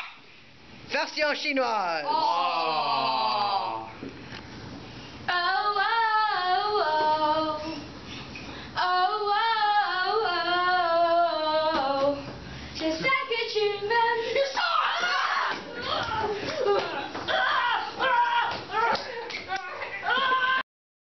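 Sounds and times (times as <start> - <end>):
child singing: 12.9 - 15.2.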